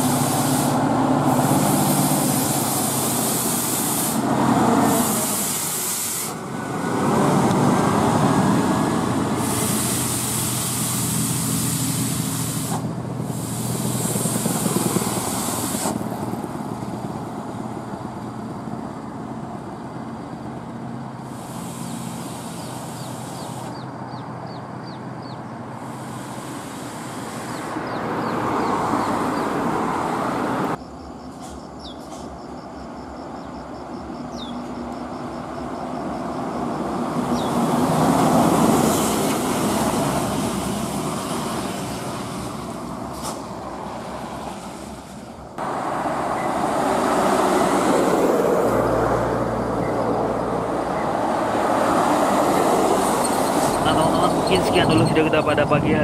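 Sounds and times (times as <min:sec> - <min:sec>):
air brake hiss: 0:00.0 - 0:06.5, 0:09.4 - 0:16.0, 0:21.2 - 0:23.8, 0:25.8 - 0:27.7, 0:43.1 - 0:43.6
diesel truck engine passing: 0:00.0 - 0:30.8, 0:35.5 - 0:56.0.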